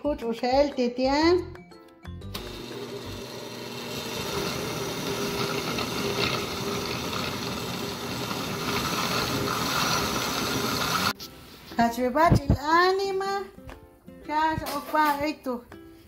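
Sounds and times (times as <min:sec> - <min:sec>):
blender running: 0:02.4 - 0:11.2.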